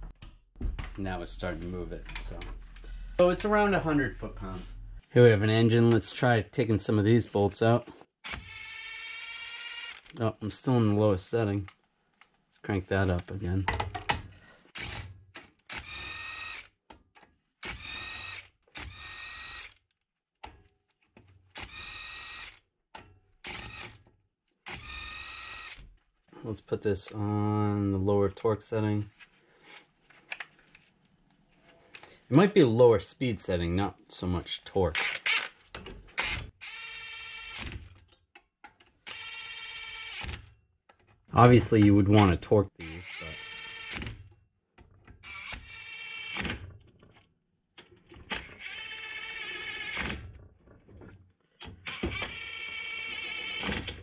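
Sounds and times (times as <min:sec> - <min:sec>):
impact wrench whining: 0:08.2 - 0:10.1, 0:15.7 - 0:16.7, 0:17.6 - 0:19.8, 0:21.5 - 0:22.6, 0:35.0 - 0:37.9, 0:39.0 - 0:40.5, 0:42.8 - 0:44.2, 0:45.2 - 0:46.6, 0:48.3 - 0:50.2, 0:51.8 - 0:53.9.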